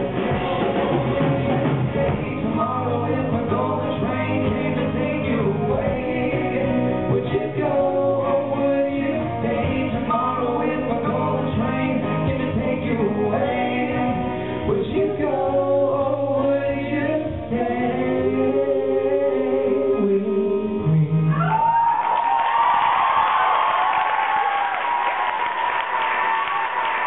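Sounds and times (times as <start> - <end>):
two men singing in harmony: 0.0 - 21.3.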